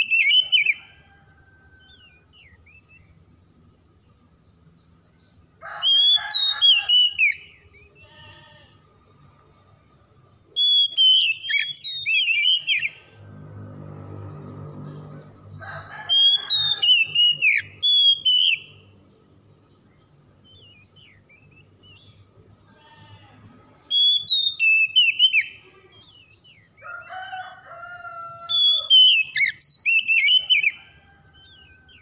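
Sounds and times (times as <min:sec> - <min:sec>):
bird singing whistled phrases: 0:10.6 - 0:13.0, 0:16.6 - 0:18.8, 0:23.9 - 0:25.5.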